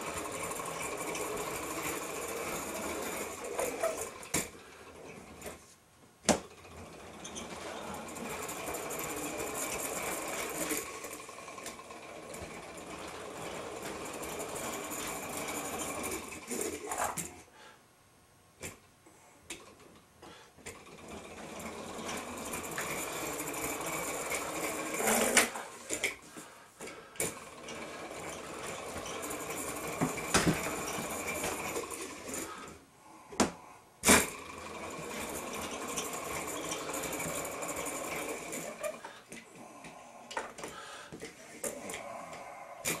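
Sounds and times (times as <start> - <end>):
fast mechanical clatter: 0.0 - 5.5, 6.5 - 17.0, 20.7 - 26.1, 27.2 - 32.7, 34.0 - 39.0.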